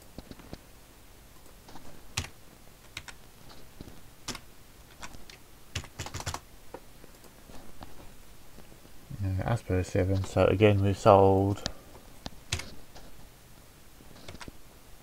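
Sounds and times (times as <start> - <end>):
computer keyboard typing: 2.1 - 3.2, 4.3 - 6.4, 12.5 - 12.8, 14.2 - 14.5.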